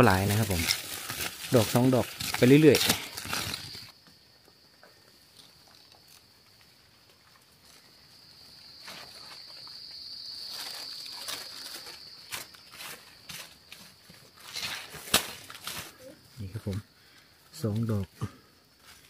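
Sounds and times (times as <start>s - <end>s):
paper bag rustling: 0.0s - 3.9s, 8.7s - 16.1s
soil being worked: 0.0s - 4.0s, 10.4s - 16.0s
insect buzzing: 0.0s - 17.3s.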